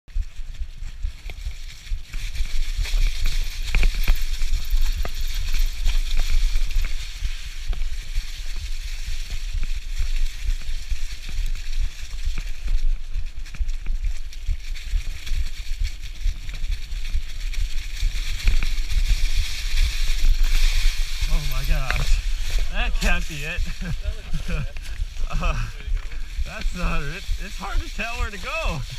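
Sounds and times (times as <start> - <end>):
bike tyres crunching dry leaves: 0.1 - 28.9
low wind rumble: 5.9 - 28.0.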